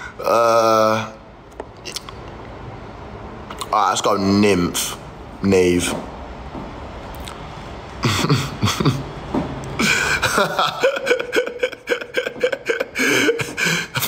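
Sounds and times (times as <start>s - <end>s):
man laughing: 8.0s - 9.2s, 9.8s - 14.0s.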